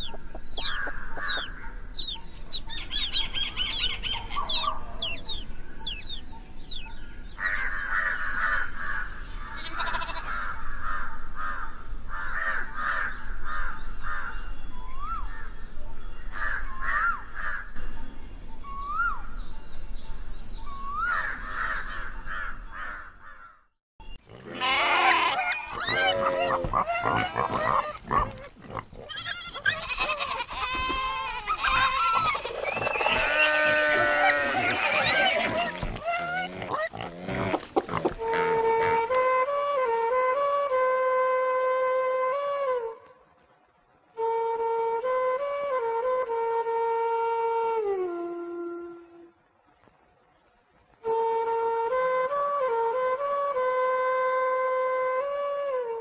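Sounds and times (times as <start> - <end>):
birds chirping and calling: 0.0 - 39.2
livestock bleating: 9.5 - 10.4, 24.3 - 39.2.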